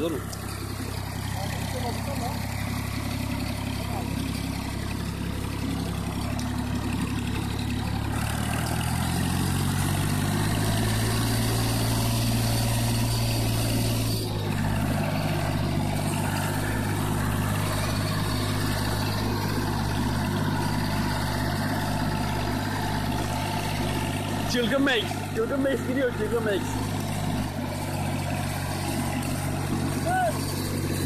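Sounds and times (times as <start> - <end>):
tractor engine running: 0.0 - 31.0.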